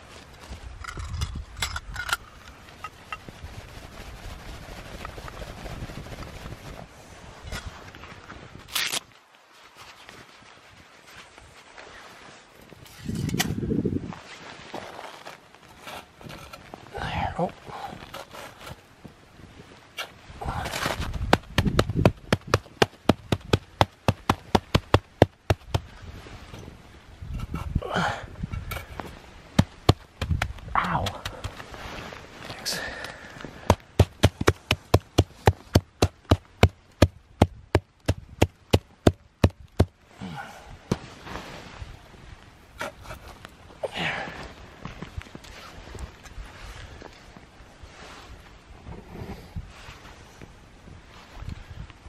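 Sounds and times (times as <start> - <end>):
handling rustle: 0.0 - 27.8
wood and charcoal crackling: 14.3 - 40.2.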